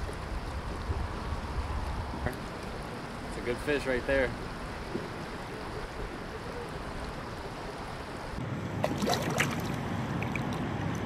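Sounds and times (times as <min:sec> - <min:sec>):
wind on microphone: 0:00.0 - 0:08.4
close splashes and drips: 0:00.0 - 0:11.0
river water: 0:00.0 - 0:11.0.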